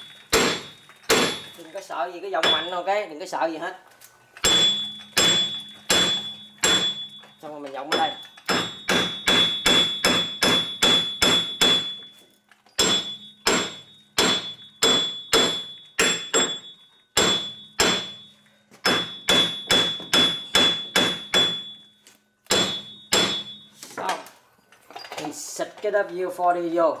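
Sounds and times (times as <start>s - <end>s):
hammer striking metal: 0.0s - 1.7s, 2.4s - 2.9s, 4.4s - 12.2s, 12.8s - 23.9s.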